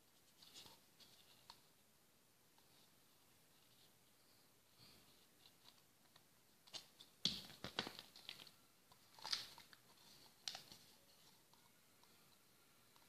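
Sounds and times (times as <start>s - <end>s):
plastic tub clicking and crinkling: 6.6s - 10.9s.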